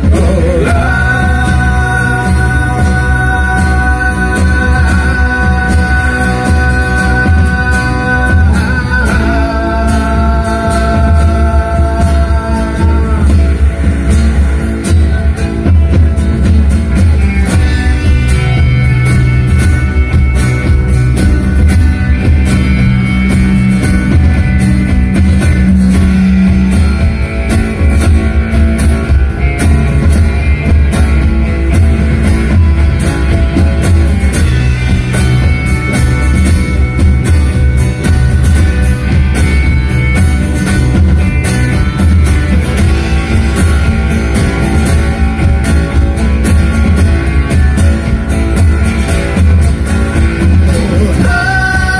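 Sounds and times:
acoustic guitar: 0.0 - 51.9
bass guitar: 0.0 - 51.9
drum kit beat: 0.0 - 51.9
electric guitar: 0.0 - 51.9.

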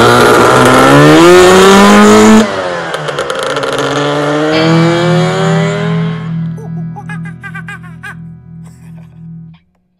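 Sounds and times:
scooter engine revving: 0.0 - 7.1.

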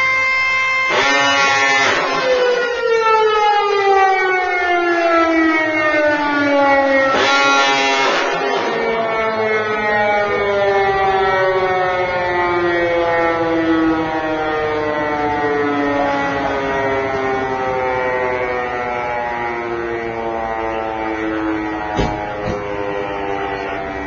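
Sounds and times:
siren winding down: 0.0 - 24.0
diaphone horn blast: 0.9 - 2.4, 7.1 - 8.8.

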